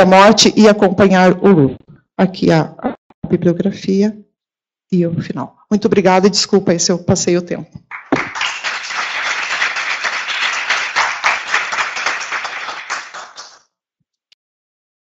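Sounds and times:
audience applauding: 7.9 - 13.6.

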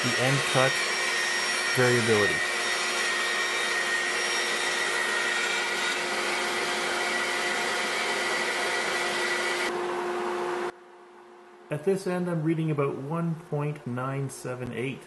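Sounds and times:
band saw cutting a board: 0.0 - 9.7.

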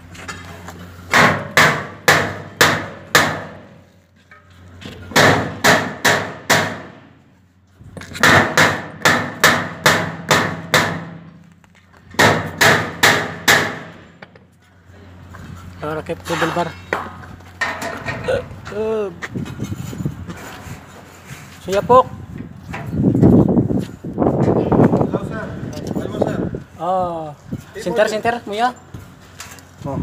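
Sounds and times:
hammer striking sheet metal: 1.1 - 3.8, 5.1 - 7.1, 8.2 - 11.4, 12.2 - 14.2.

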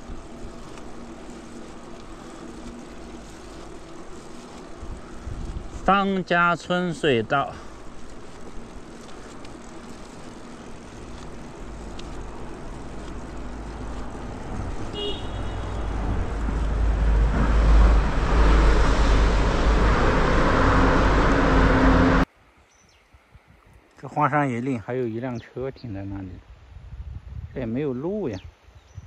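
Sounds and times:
road traffic rumbling in tunnel: 0.0 - 22.3.

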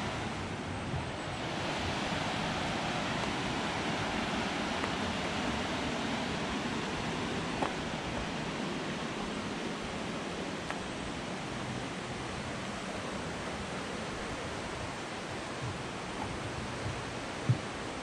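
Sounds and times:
water rushing: 0.0 - 18.0.

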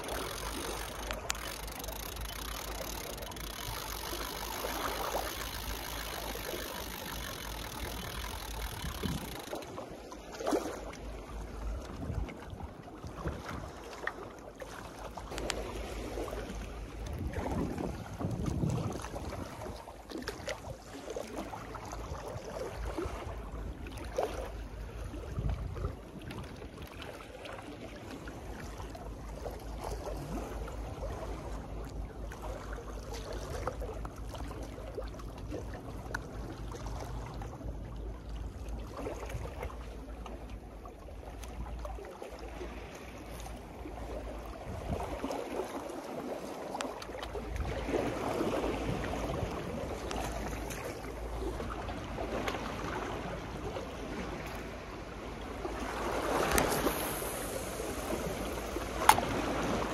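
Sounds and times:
sea water washing at seawall: 0.0 - 59.9
wind on microphone: 8.2 - 9.5, 17.0 - 19.8, 44.5 - 45.4.

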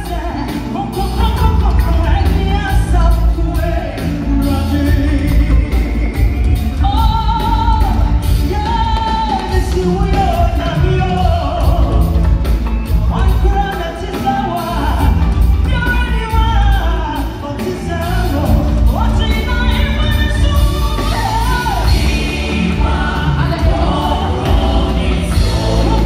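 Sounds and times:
keyboard: 0.0 - 26.0
steady drum beat: 0.0 - 26.0
vocal group singing: 0.0 - 26.0
heavy bass: 14.7 - 26.0.

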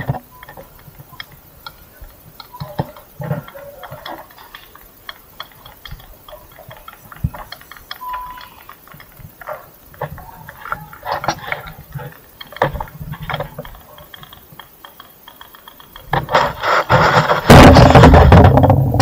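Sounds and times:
brief steady tone: 0.2 - 0.7, 7.9 - 8.7.

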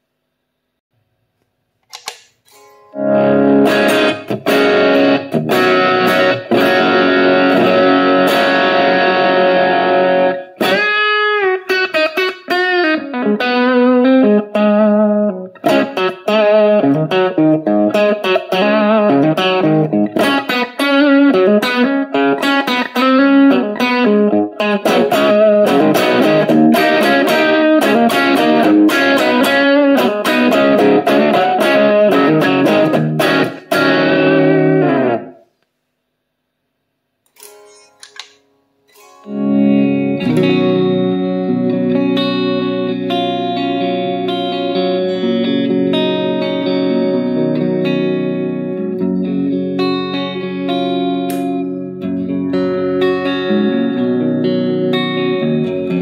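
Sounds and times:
bent guitar notes: 1.9 - 35.4, 37.3 - 56.0
electric guitar playing chords: 1.9 - 35.5, 37.3 - 56.0.

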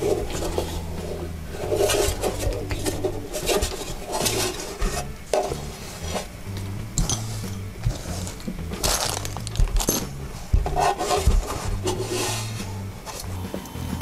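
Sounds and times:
metal device rubbing and scraping: 0.0 - 13.6
hand tools picked up: 7.0 - 10.1.

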